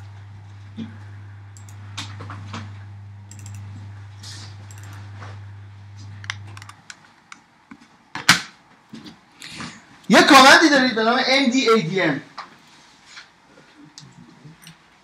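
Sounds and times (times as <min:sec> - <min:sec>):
low steady hum: 0:00.0 - 0:08.0
keyboard and mouse clicks: 0:03.3 - 0:03.7, 0:04.7 - 0:05.0, 0:06.2 - 0:07.4.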